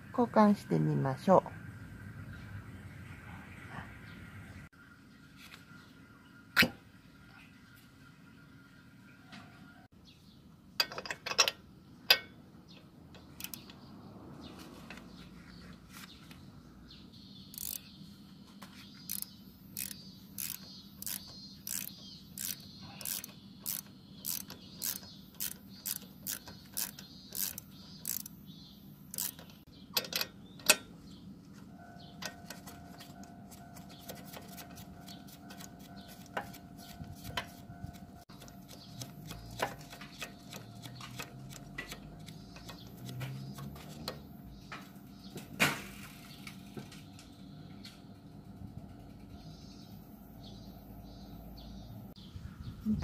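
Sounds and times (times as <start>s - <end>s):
ratchet wrench clicking: 13.3s - 13.7s, 17.5s - 17.9s, 19.1s - 28.4s, 29.1s - 30.8s.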